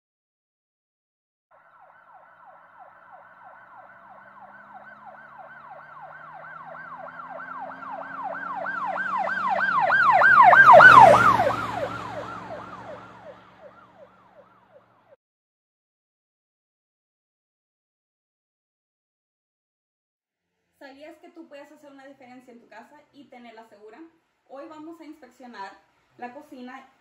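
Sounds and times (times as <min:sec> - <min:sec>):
yelp siren: 0:01.5 - 0:15.2.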